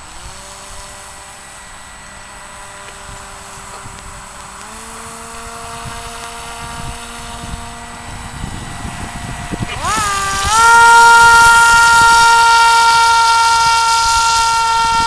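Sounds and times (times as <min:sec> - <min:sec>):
model airboat motor whining: 0:00.0 - 0:15.0.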